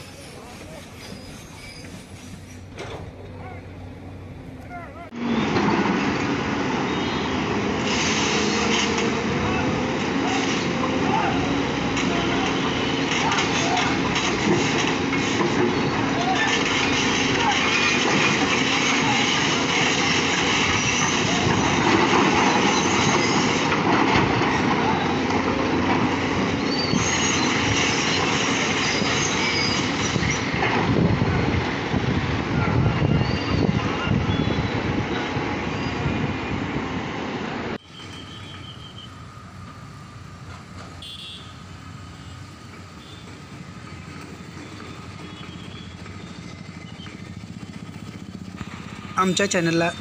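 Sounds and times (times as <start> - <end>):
dump truck running: 0.0 - 50.0
heavy excavators working: 0.0 - 50.0
concrete breaking and rumbling: 10.3 - 26.2.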